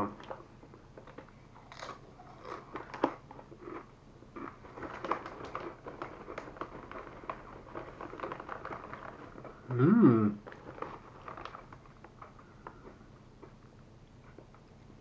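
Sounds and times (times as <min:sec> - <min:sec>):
crunching tortilla chip: 0:01.0 - 0:09.8, 0:10.4 - 0:13.6.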